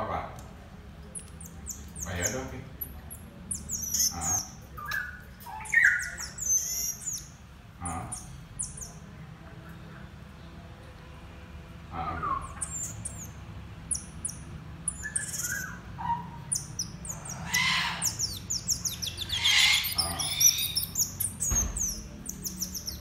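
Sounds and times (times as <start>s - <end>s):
monkey high-pitched chirps: 2.8s - 7.3s, 12.3s - 23.0s.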